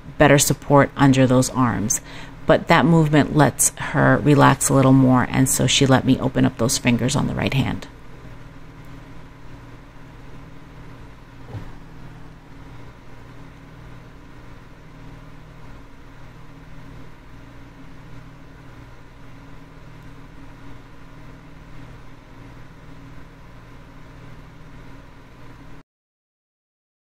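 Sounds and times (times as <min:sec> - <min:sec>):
low machine hum: 0:00.0 - 0:25.8
soft knock: 0:11.4 - 0:11.8.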